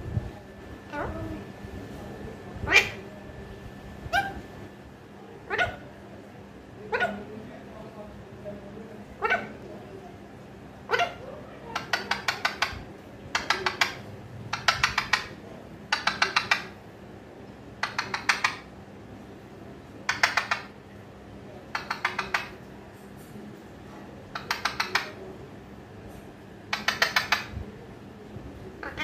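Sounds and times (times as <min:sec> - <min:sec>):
parakeet clicking its beak: 0:11.8 - 0:12.8, 0:13.4 - 0:16.7, 0:17.8 - 0:18.7, 0:20.1 - 0:20.7, 0:21.7 - 0:22.6, 0:24.4 - 0:25.2, 0:26.7 - 0:27.5.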